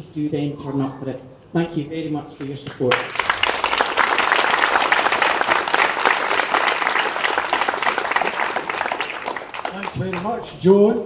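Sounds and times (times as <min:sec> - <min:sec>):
crowd applauding: 0:02.4 - 0:10.7.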